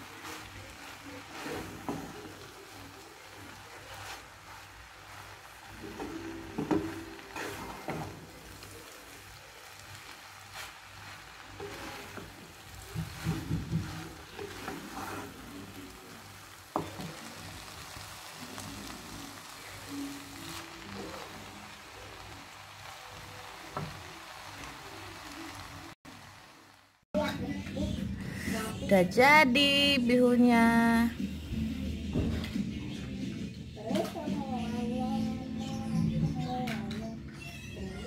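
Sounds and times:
light sizzling: 0:00.0 - 0:32.6
spatula scraping a frying pan: 0:03.5 - 0:08.6, 0:10.0 - 0:15.8.

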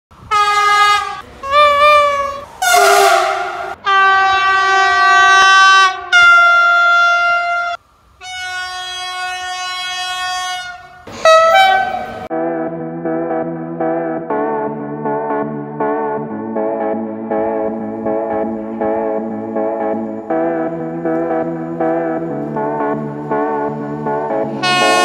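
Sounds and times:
locomotive horn blasts: 0:00.2 - 0:12.3, 0:24.4 - 0:25.0.

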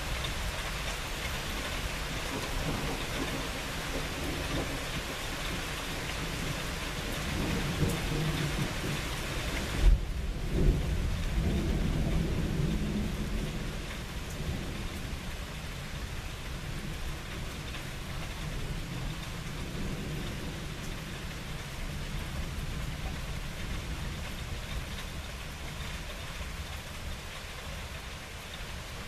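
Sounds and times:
rain falling: 0:00.0 - 0:29.0
thunder rumbling: 0:02.2 - 0:05.2, 0:06.0 - 0:25.0.

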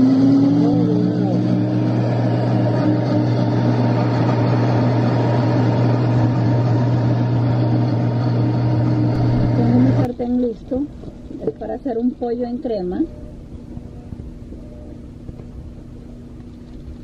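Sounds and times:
blender motor humming: 0:00.0 - 0:10.1.

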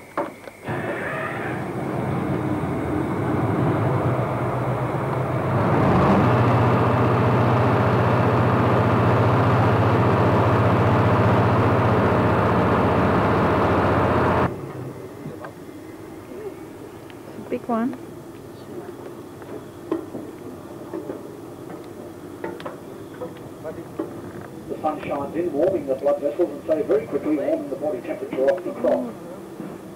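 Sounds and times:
boat motor humming: 0:00.6 - 0:18.4.

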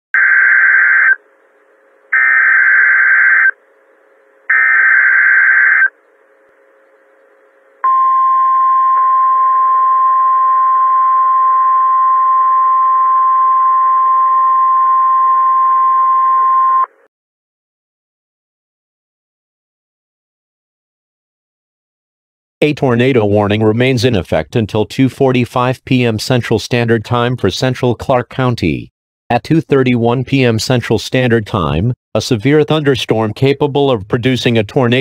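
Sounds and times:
steady attention tone: 0:00.2 - 0:17.0
digital data bursts: 0:02.2 - 0:03.6, 0:04.5 - 0:05.9.

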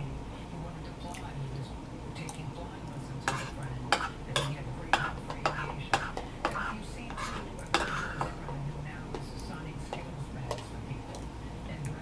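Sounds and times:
spoon scraping plastic bowl: 0:03.2 - 0:08.5.

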